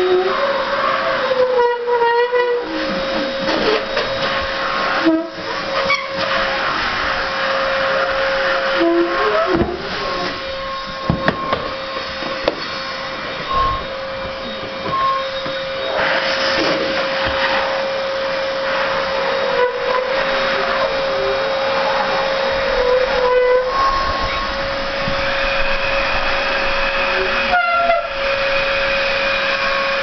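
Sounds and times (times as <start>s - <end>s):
vacuum cleaner motor blowing air: 0.0s - 30.0s.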